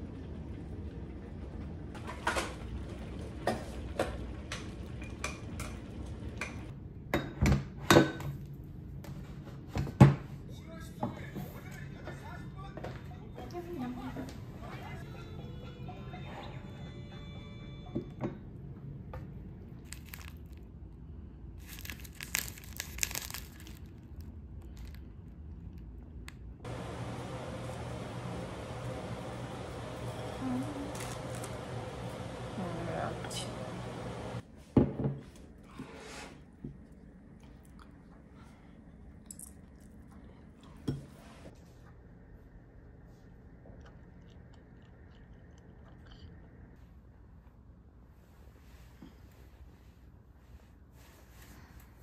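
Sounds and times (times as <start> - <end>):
low steady hum: 0.0 - 52.0
plastic wrapper crinkling: 19.8 - 20.6, 21.6 - 25.1.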